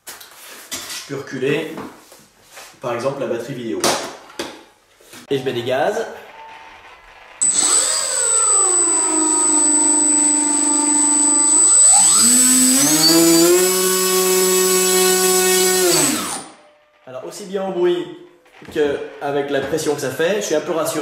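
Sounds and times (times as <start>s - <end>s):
electric motor and propeller spinning: 7.4s - 16.6s
thin high whine: 7.4s - 16.9s.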